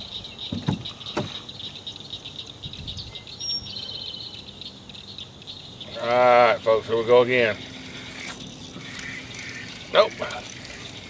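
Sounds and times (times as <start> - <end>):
bird chirp: 0.0 - 11.0
insect chorus: 0.0 - 11.0.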